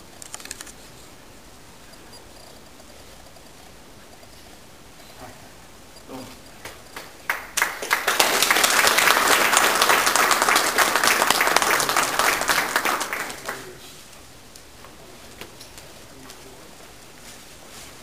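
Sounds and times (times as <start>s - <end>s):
audience applauding: 6.6s - 13.8s.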